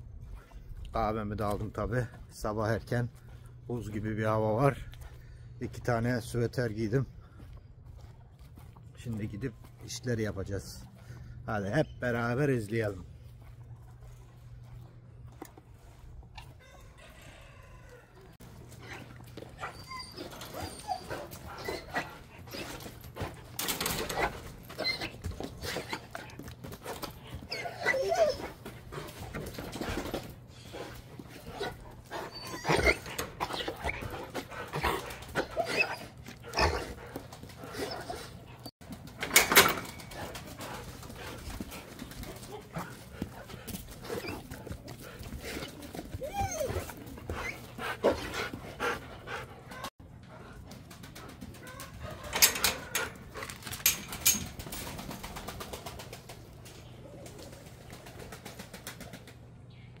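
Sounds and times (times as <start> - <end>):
dog whimpering and panting: 18.6 - 38.7, 39.5 - 50.6
chain-link gate clanking: 19.6 - 26.0, 39.1 - 40.4, 52.1 - 54.9.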